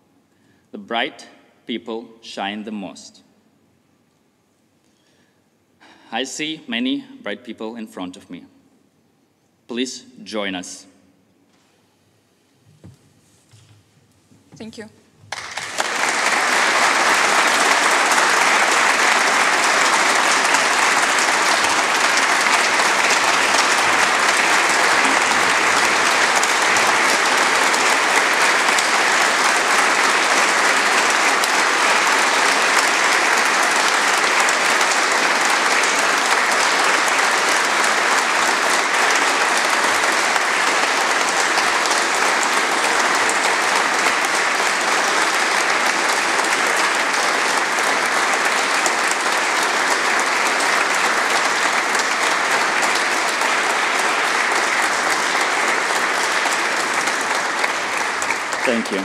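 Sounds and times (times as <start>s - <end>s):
large audience applauding: 15.3s - 59.0s.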